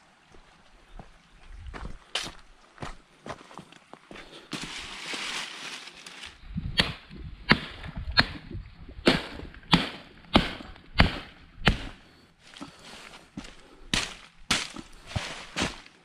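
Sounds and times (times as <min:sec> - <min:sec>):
hatchet chopping sapling: 0:06.6 - 0:12.7, 0:13.9 - 0:15.8.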